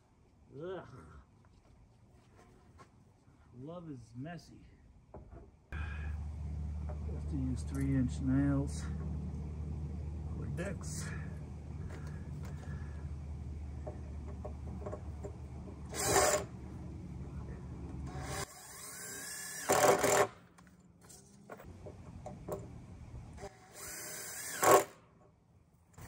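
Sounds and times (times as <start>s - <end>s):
power drill running: 11.2s - 16.7s, 18.0s - 20.3s, 23.4s - 24.9s.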